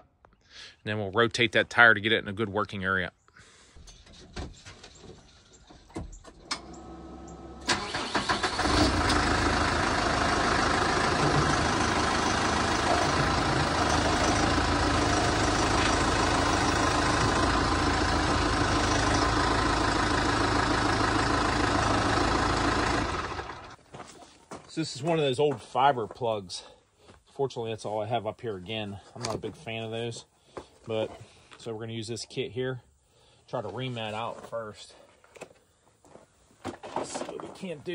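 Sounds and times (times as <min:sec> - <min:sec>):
tractor diesel engine starting: 0:05.8 - 0:23.8.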